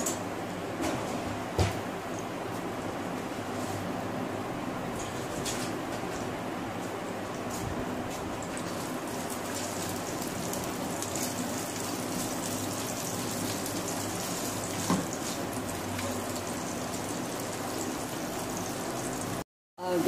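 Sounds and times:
onions sizzling in hot oil: 0:08.6 - 0:19.4.

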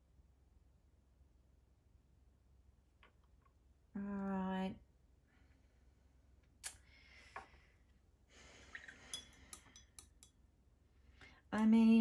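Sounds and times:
tools clinking and tapping: 0:09.0 - 0:10.4.

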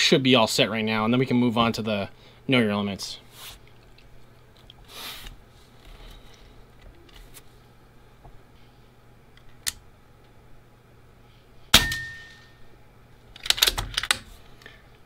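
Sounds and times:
air rifle shot: 0:11.7 - 0:12.2.

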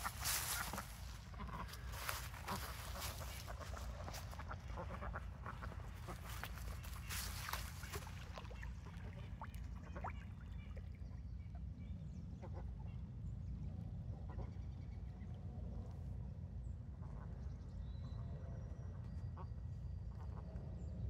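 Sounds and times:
ducks quacking: 0:00.0 - 0:10.4.

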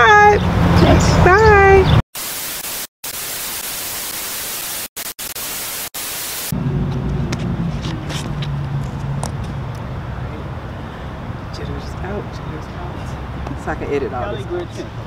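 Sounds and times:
tv static hiss: 0:02.2 - 0:06.5.

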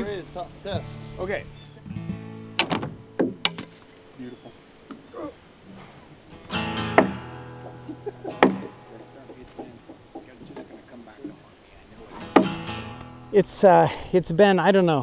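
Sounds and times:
insects trilling: 0:00.0 - 0:15.0
log creaking: 0:01.9 - 0:13.2
wooden logs knocking: 0:02.6 - 0:04.0, 0:06.8 - 0:11.5, 0:12.1 - 0:12.7.

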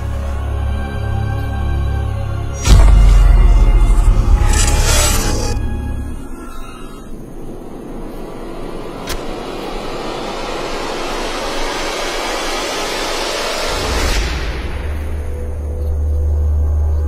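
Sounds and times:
sharp click: 0:02.6 - 0:05.6
rushing noise: 0:02.6 - 0:15.3.

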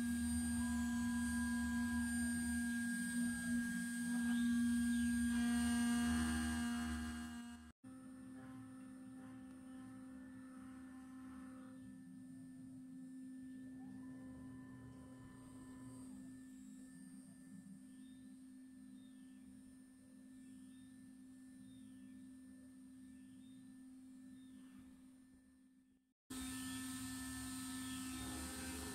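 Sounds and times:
router spindle whine: 0:00.0 - 0:19.5, 0:26.3 - 0:28.9.

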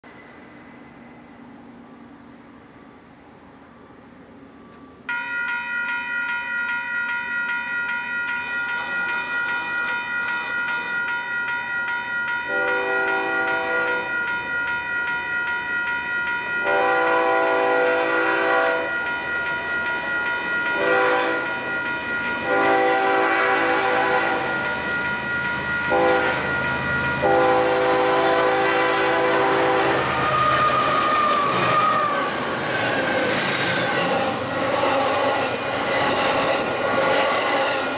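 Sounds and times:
crossing warning bell ringing: 0:04.6 - 0:37.9
locomotive horn blasts: 0:12.5 - 0:14.1, 0:16.6 - 0:19.0, 0:20.8 - 0:21.5, 0:22.4 - 0:24.6, 0:25.9 - 0:26.6, 0:27.2 - 0:30.4.

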